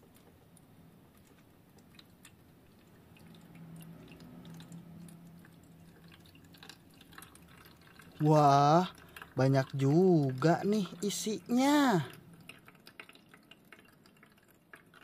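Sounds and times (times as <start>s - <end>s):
water drips: 0.0s - 15.0s
water trickling into plastic tank: 0.0s - 15.0s.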